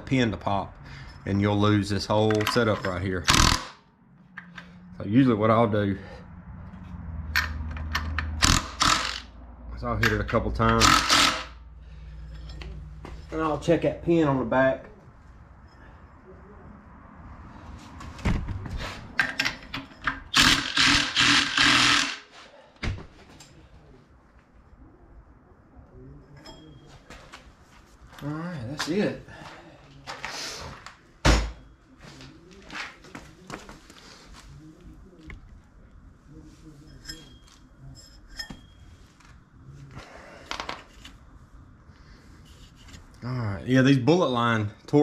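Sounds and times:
impact wrench rattling: 0:02.2 - 0:03.8, 0:07.4 - 0:09.3, 0:10.0 - 0:11.6, 0:19.2 - 0:22.3
light metallic clinks: 0:26.3 - 0:27.1.

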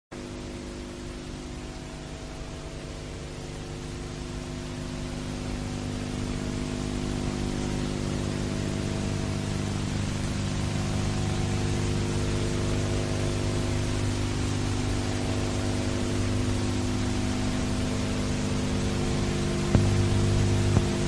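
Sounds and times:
low droning hum: 0:00.2 - 0:21.0
steady hiss: 0:00.2 - 0:21.0.

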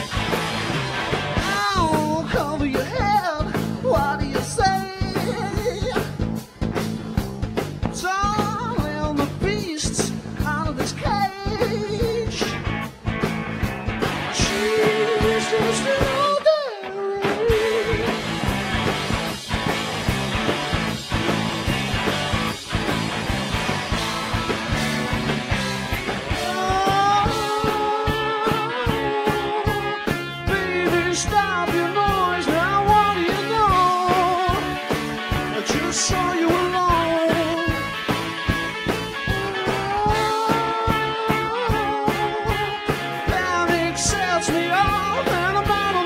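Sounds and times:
drum kit steady beat: 0:00.0 - 0:46.0
guitar: 0:00.0 - 0:46.0
live rock band playing: 0:00.0 - 0:46.0
man singing: 0:01.4 - 0:06.4, 0:07.9 - 0:12.7, 0:14.2 - 0:18.4, 0:26.3 - 0:38.1, 0:39.5 - 0:46.0.

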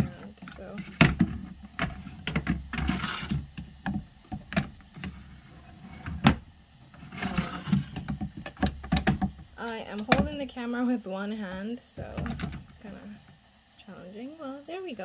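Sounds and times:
drawer sliding scrapes: 0:00.0 - 0:03.6, 0:04.9 - 0:08.2
drawer knocking and clicking: 0:06.0 - 0:06.4, 0:07.2 - 0:09.4.

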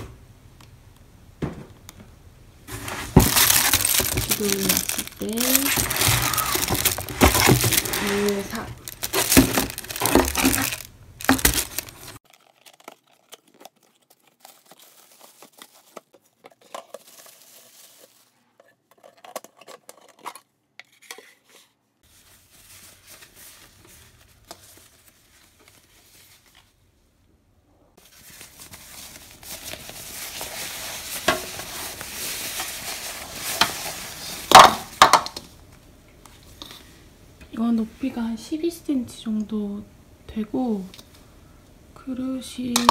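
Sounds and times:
paper rustling: 0:02.7 - 0:18.4, 0:21.0 - 0:26.8, 0:28.0 - 0:34.7
plastic bag crinkling: 0:02.7 - 0:20.3, 0:28.0 - 0:35.5
plastic bowls knocking and clinking: 0:02.9 - 0:12.2, 0:34.5 - 0:35.5.

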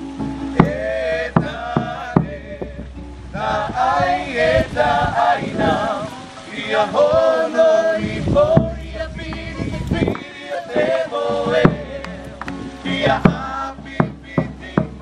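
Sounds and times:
sharp percussion strikes: 0:00.0 - 0:04.4
group singing together: 0:00.0 - 0:15.0.

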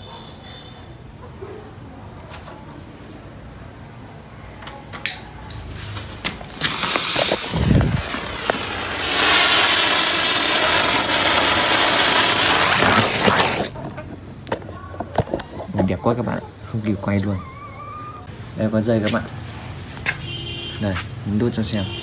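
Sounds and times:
firework sparks hissing: 0:06.0 - 0:13.8.

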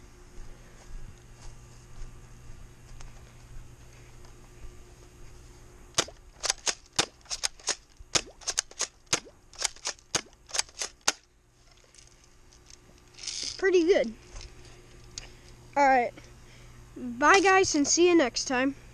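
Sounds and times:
airsoft shotgun snaps and clacks: 0:06.0 - 0:11.3.

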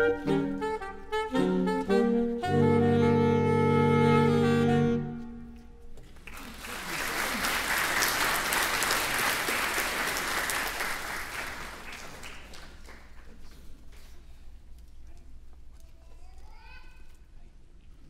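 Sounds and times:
saxophone quartet chord: 0:00.0 - 0:05.7
audience applause: 0:06.2 - 0:13.2.

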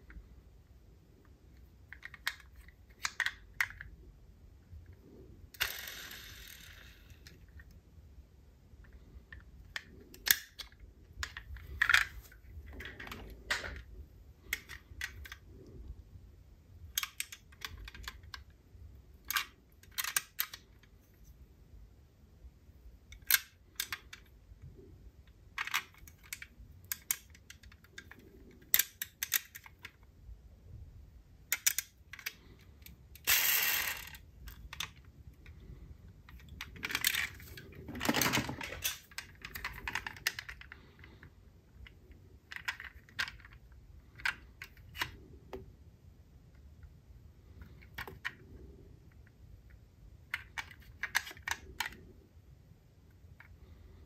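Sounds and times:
toy cars clinking: 0:05.6 - 0:07.5, 0:33.2 - 0:35.0, 0:36.5 - 0:40.7
toy cars rattling: 0:05.6 - 0:07.6, 0:33.2 - 0:35.1, 0:36.3 - 0:40.9.

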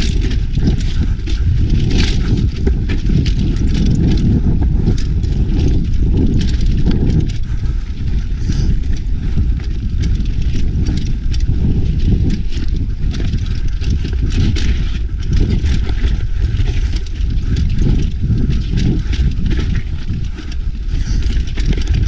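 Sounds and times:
bike rumbling over rough trail: 0:00.0 - 0:22.0
clicks and knocks of bike frame: 0:00.0 - 0:22.0.

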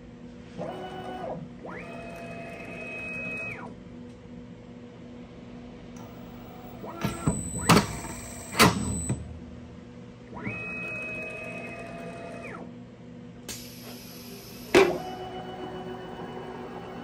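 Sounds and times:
cnc spindle motor whine: 0:00.6 - 0:03.7, 0:06.0 - 0:09.2, 0:13.8 - 0:17.0.

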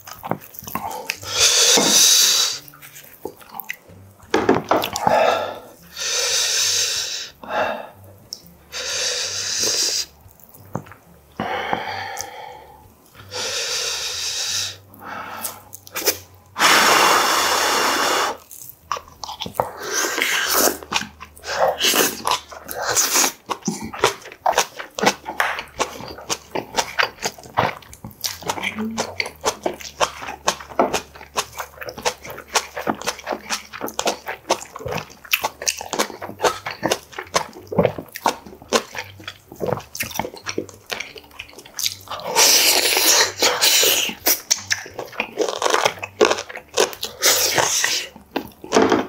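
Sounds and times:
wet chewing and lip smacking: 0:00.0 - 0:06.0, 0:06.6 - 0:13.4, 0:14.8 - 0:16.5, 0:17.9 - 0:49.0
breath puffed out through mouth: 0:11.4 - 0:18.4.

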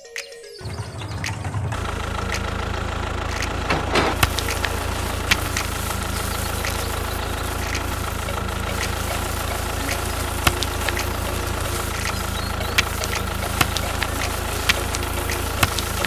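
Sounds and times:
diesel engine idling: 0:00.6 - 0:16.0
sharp clicks: 0:01.2 - 0:16.0.

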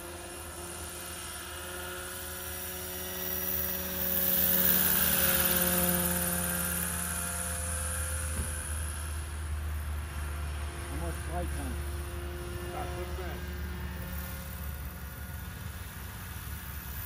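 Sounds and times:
model helicopter rotor whine: 0:00.0 - 0:17.0.

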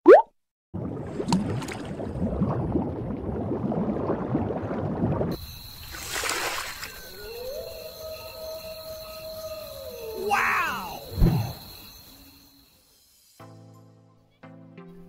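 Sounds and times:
bubbling gurgling water: 0:00.8 - 0:05.9.

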